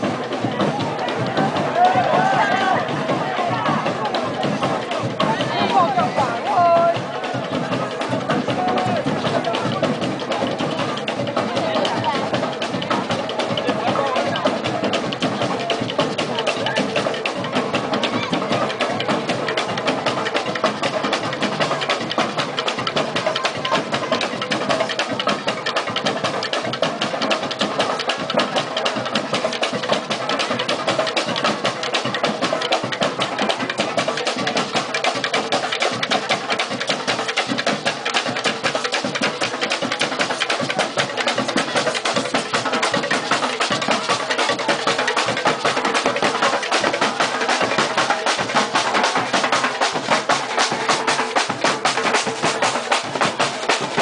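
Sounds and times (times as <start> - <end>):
marching drummers playing fast rhythm: 0.0 - 54.0.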